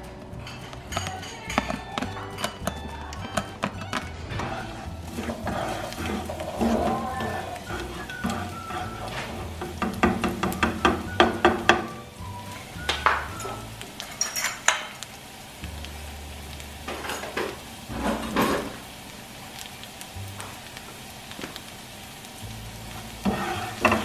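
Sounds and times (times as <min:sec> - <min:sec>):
oil sizzling: 0:00.0 - 0:24.0
utensil clacking against pan: 0:00.4 - 0:12.0, 0:12.8 - 0:15.0, 0:23.2 - 0:24.0.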